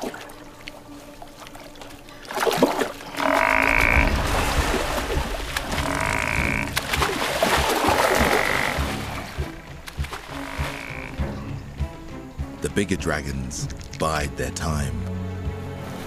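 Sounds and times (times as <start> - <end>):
water splashing in stream: 0.0 - 11.9.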